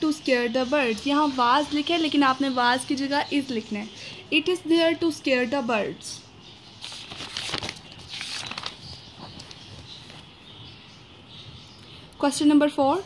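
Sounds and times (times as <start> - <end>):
paper pages rustling: 6.8 - 10.3.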